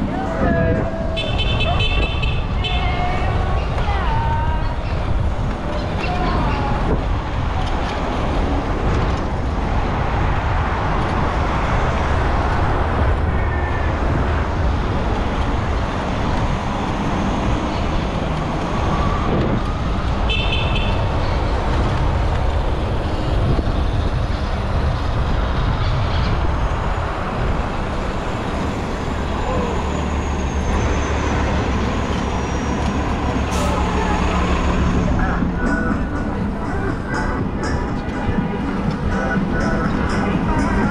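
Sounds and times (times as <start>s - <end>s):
passing road traffic: 0.0s - 40.9s
wind rush on microphone: 0.0s - 40.9s.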